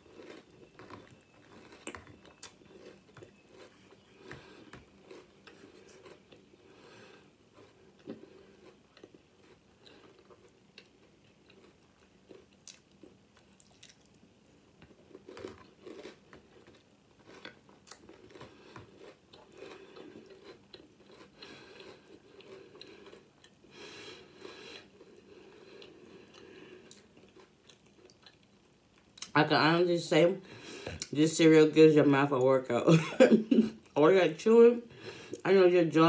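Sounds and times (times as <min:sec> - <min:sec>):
person chewing crunchy cereal: 0:00.0 - 0:29.3.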